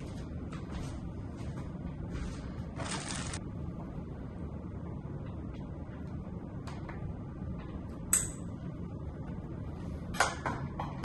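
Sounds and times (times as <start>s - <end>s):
faint steady hum: 0.0s - 11.0s
sharp metallic clink: 8.1s - 8.5s.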